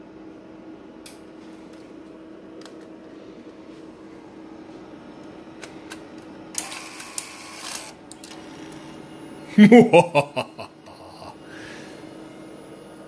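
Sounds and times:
steady low hum: 0.0 - 13.0
tape deck mechanism whirring: 5.6 - 8.8.

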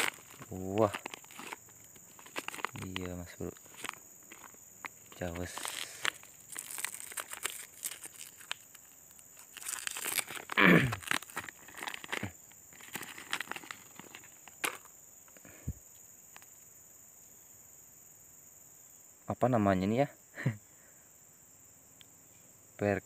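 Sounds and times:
plastic packet crinkling: 0.0 - 14.9.

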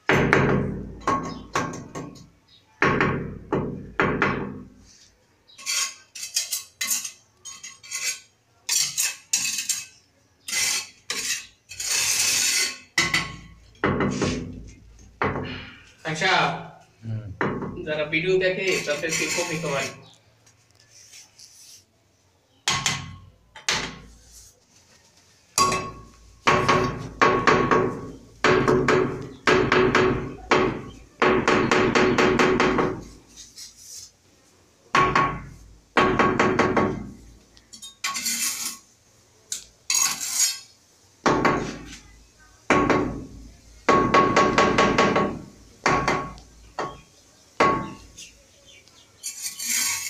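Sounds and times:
rattling squeaky tile contact: 4.9 - 13.4, 18.5 - 21.9, 37.7 - 38.9, 39.5 - 40.8, 49.2 - 50.0.

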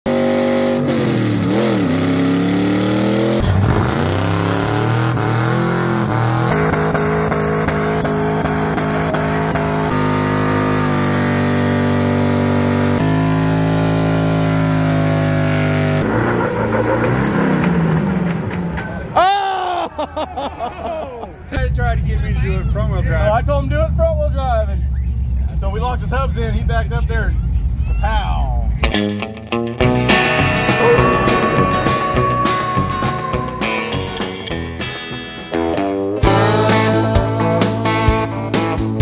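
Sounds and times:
engines revving hard: 0.1 - 18.8.

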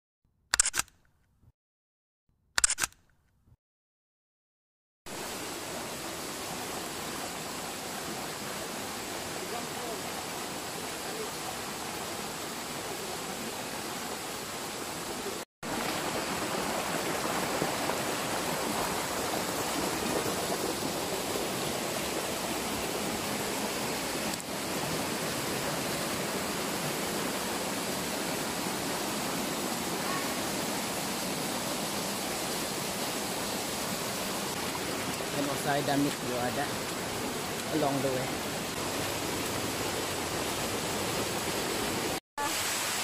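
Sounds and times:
water pouring over rocks: 15.7 - 41.0.

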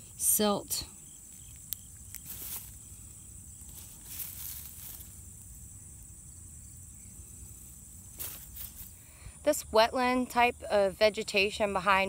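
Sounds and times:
rustling of grass and soil: 0.0 - 9.4
high insect chirring: 0.0 - 10.7.

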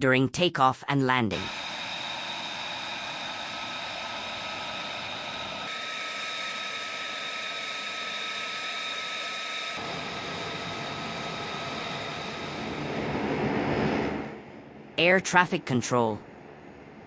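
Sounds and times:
jet engine idling whine: 1.3 - 17.0.

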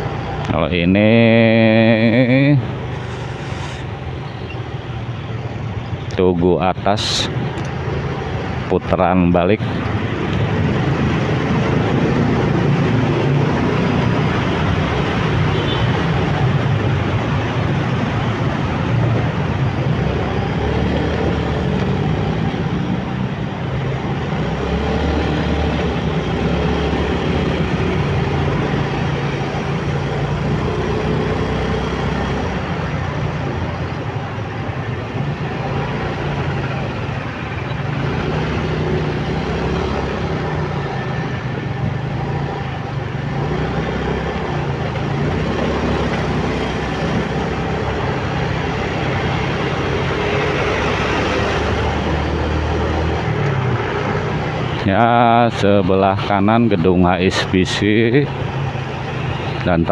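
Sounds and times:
road noise: 0.0 - 59.9
surrounding traffic: 0.0 - 59.9
motorcycle engine revving: 9.8 - 33.1, 35.3 - 54.8.

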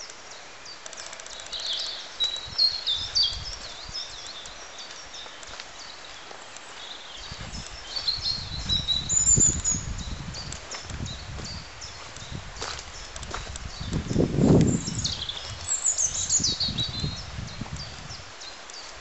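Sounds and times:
footsteps on path: 0.0 - 19.0
small birds singing: 0.0 - 19.0.

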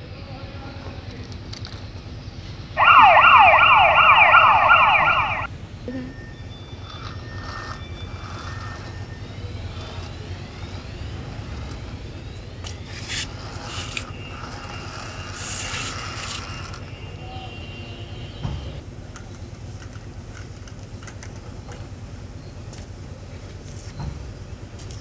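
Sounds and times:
toy electronic siren whooping: 2.8 - 11.7.

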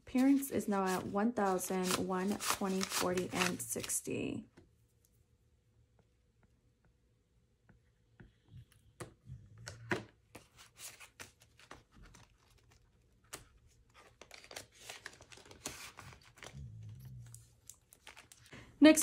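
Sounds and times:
paper money rustling: 0.2 - 3.9, 13.8 - 16.5.

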